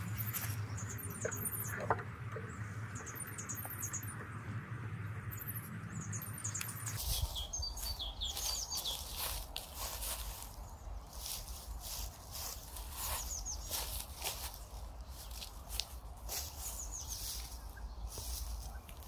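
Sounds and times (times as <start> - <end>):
footsteps in dry grass: 0.0 - 0.9, 6.5 - 19.0
small birds chirping: 0.0 - 19.0
rustling patter: 6.9 - 19.0.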